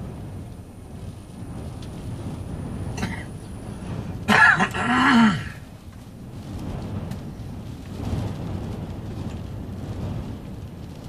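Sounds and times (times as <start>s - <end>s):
storm wind rumbling against car: 0.0s - 11.0s
person coughing: 3.0s - 3.3s, 4.3s - 5.6s.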